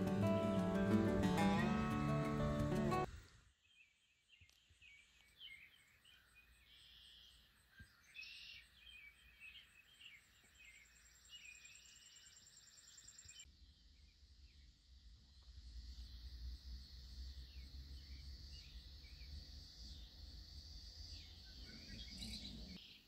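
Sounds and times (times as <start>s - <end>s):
faint birds chirping: 0.0s - 23.0s.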